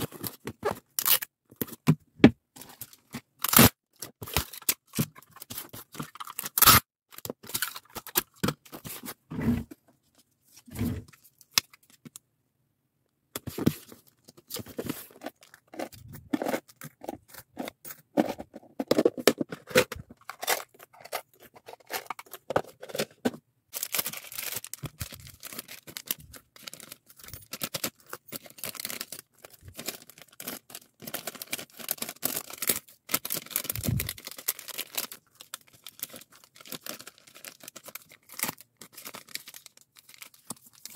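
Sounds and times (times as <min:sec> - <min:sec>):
packing tape ripping: 0:03.4 - 0:03.7, 0:06.4 - 0:06.8
plastic bags crinkling: 0:23.8 - 0:40.9.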